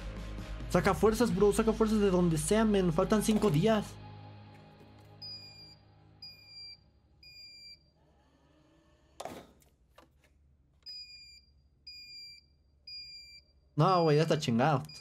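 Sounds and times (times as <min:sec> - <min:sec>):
smoke alarm beeping: 0:05.2 - 0:08.0, 0:10.8 - 0:15.0.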